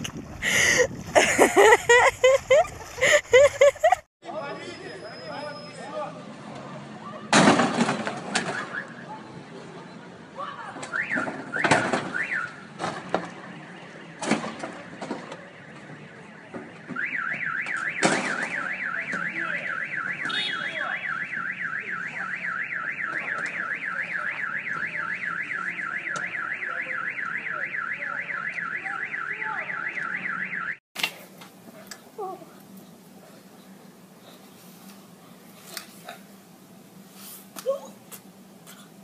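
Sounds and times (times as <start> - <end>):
car alarm siren warbling: 17.0 - 30.8.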